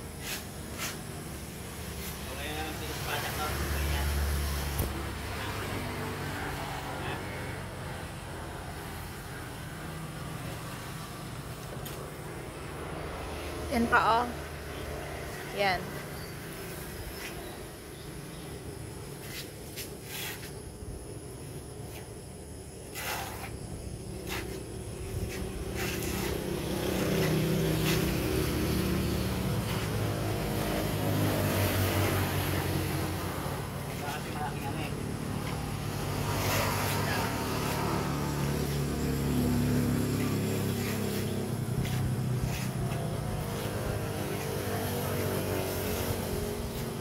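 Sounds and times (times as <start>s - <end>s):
short scraping strokes: 0.2s - 1.1s, 19.2s - 20.6s, 22.8s - 23.6s, 24.2s - 28.2s
vehicle engine running: 24.7s - 47.0s.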